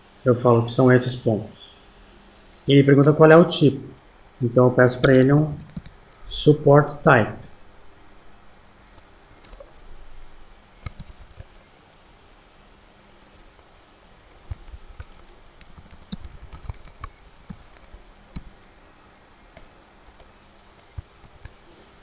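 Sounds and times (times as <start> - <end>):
typing on computer keyboard: 3.9 - 4.4, 5.0 - 6.3, 8.8 - 11.6, 12.9 - 18.7, 19.6 - 21.8.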